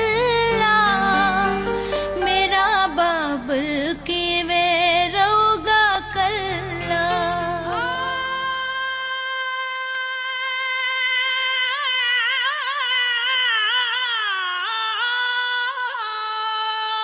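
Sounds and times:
low instrumental backing: 0:00.0 - 0:08.7
woman singing in a high voice: 0:00.0 - 0:17.0.

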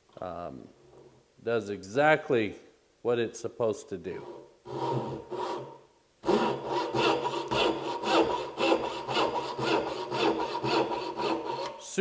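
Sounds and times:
hand saw cutting wood: 0:04.2 - 0:11.9.

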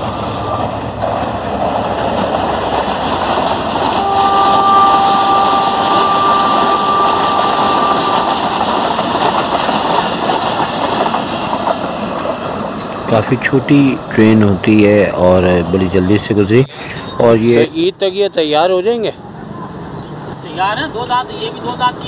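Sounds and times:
train wheels rumbling on rails: 0:00.0 - 0:22.0
steady high tone: 0:04.0 - 0:08.7.

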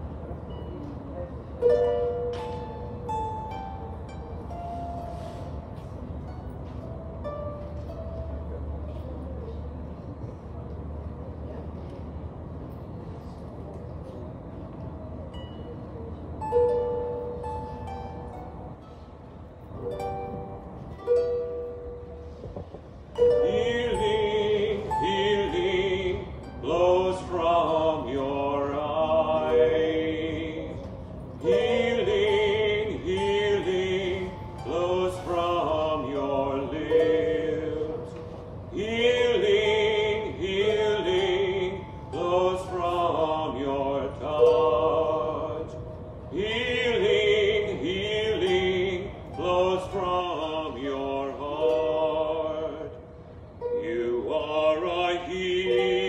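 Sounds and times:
harp: 0:00.0 - 0:10.5, 0:15.0 - 0:56.0
man singing slow melody: 0:23.2 - 0:56.0.

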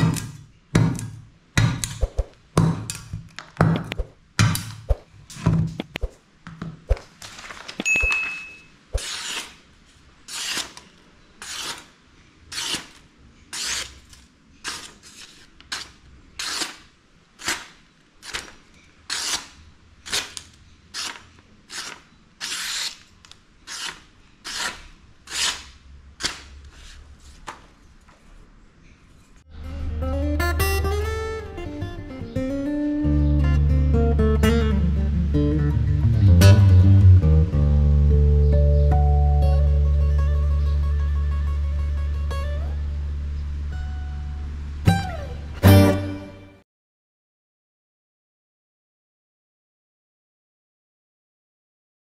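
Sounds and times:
machete knocking on wooden block: 0:00.0 - 0:02.0
blade slicing paper swish: 0:09.0 - 0:09.6, 0:10.3 - 0:11.9, 0:13.6 - 0:16.8, 0:17.4 - 0:20.4, 0:21.0 - 0:23.1, 0:23.7 - 0:27.5.

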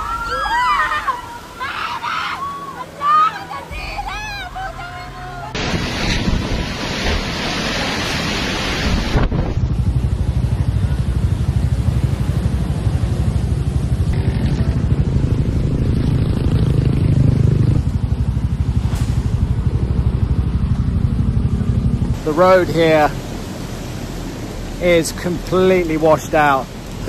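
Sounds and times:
low pulsing rumble: 0:04.0 - 0:25.6
storm wind rushing: 0:05.6 - 0:10.3.

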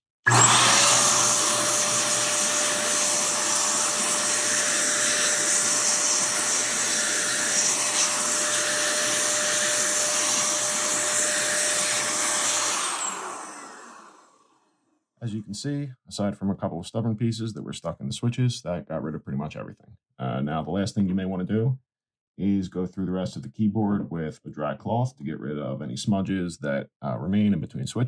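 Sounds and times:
air duster blowing: 0:00.3 - 0:14.3.

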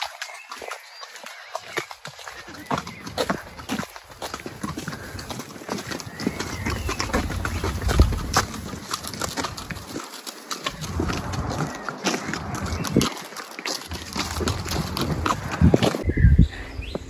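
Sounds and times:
hooves knocking and thudding: 0:00.0 - 0:16.1
low rumble: 0:10.7 - 0:13.1.

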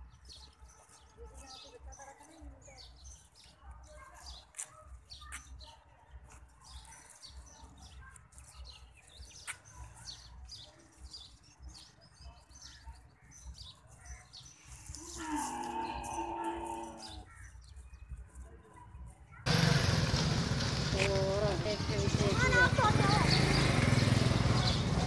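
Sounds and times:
small birds chirping: 0:00.0 - 0:25.0.

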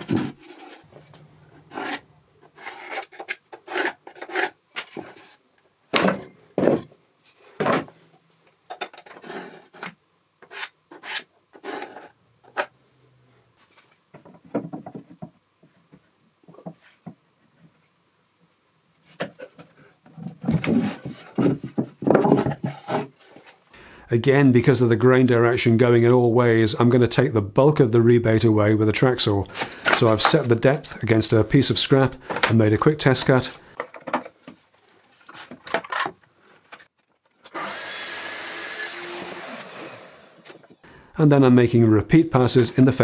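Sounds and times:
wood rubbing: 0:00.0 - 0:05.4.

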